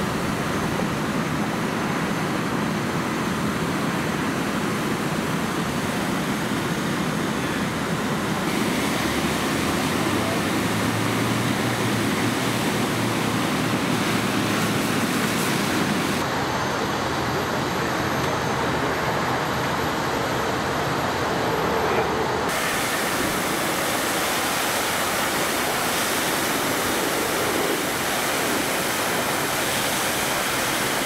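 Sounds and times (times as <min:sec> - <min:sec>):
hose spraying foam hiss: 0:08.5 - 0:16.2, 0:22.5 - 0:31.0.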